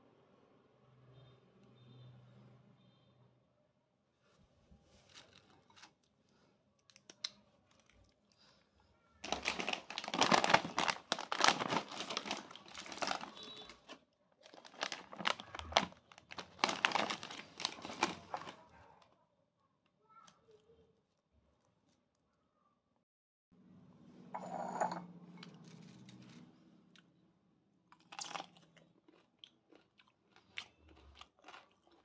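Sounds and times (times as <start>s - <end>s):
chip bag crinkling: 5.1s - 6.1s, 9.2s - 18.7s, 29.1s - 32.0s.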